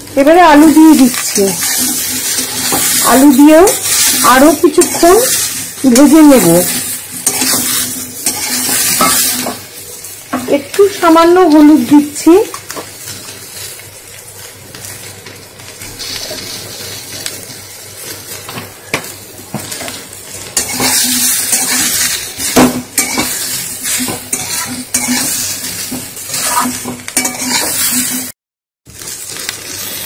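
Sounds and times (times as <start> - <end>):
vegetables sizzling in oil: 0.0 - 30.0
metal spatula scraping a pan: 1.0 - 9.6, 19.7 - 28.3.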